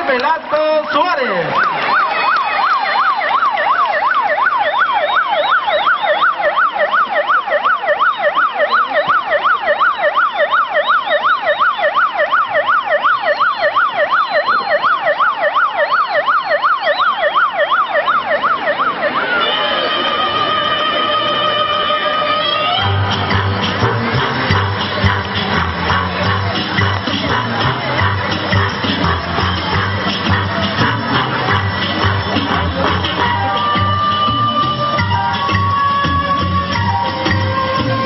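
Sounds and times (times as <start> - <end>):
siren in fast yelp: 0.7 - 38.0
music: 19.6 - 38.0.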